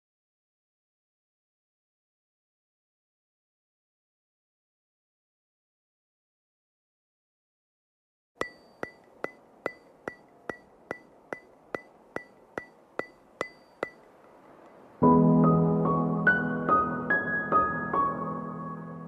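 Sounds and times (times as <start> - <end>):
clock-like ticks with bright ring: 8.4 - 14.8
soft synth and piano music: 14.6 - 19.0.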